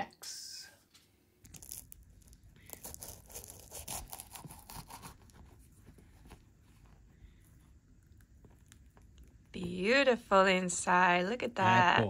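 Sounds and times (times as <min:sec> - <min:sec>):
pastry crust crackling: 0:01.4 - 0:09.6
knife sawing through pastry: 0:02.7 - 0:05.6.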